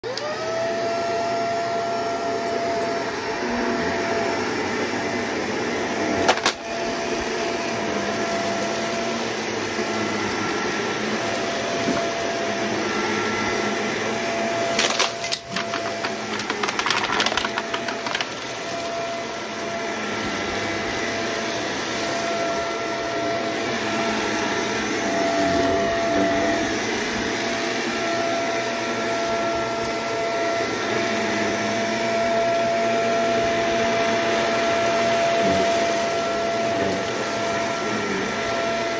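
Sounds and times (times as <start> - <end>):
vacuum cleaner whine: 0.0 - 38.9
debris rattling in vacuum: 6.2 - 28.0, 33.8 - 38.9.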